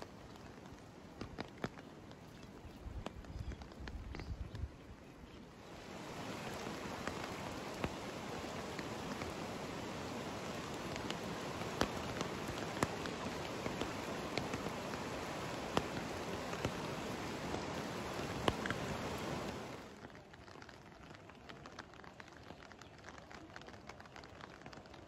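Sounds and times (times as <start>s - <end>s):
river rushing: 0.0s - 3.0s, 5.4s - 20.0s
light rain pattering: 0.0s - 25.0s
raindrop ticks: 0.0s - 25.0s.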